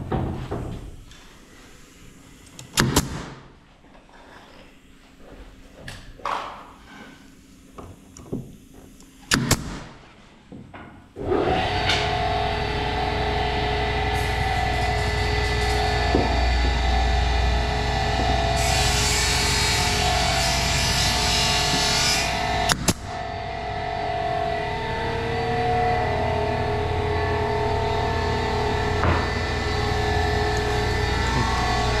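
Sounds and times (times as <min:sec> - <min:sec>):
workshop machine humming: 0:11.2 - 0:32.0.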